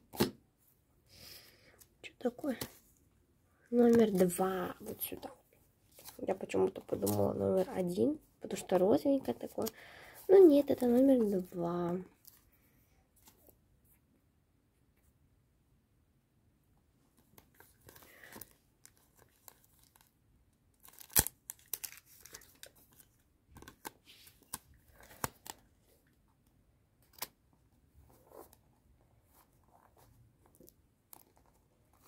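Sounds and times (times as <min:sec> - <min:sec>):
paper crinkling and tearing: 0:20.8 - 0:25.6.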